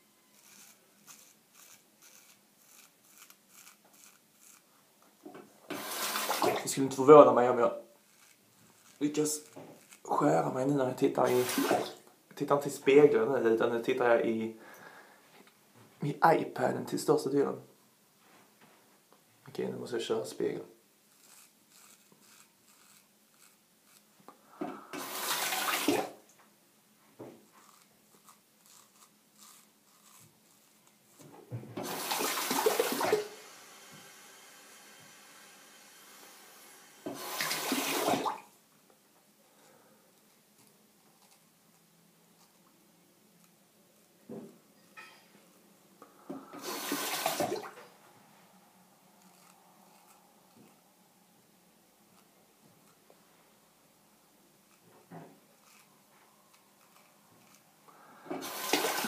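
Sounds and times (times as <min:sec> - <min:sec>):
faint steady hiss: 0:00.0 - 0:59.0
razor scraping beard hair: 0:00.3 - 0:04.7, 0:05.7 - 0:07.4, 0:08.0 - 0:10.5, 0:11.1 - 0:11.9, 0:21.1 - 0:24.2, 0:27.5 - 0:33.1, 0:40.6 - 0:42.6, 0:49.2 - 0:50.8, 0:55.6 - 0:57.7.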